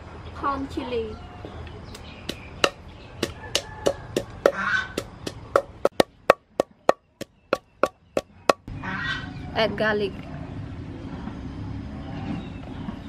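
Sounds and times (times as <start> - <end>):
pestle pounding in wooden mortar: 2.3 - 8.7.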